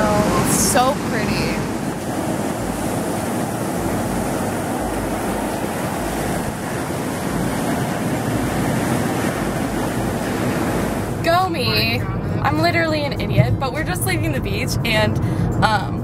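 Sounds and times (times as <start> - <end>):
ocean waves breaking over rocks: 0.0 - 12.0.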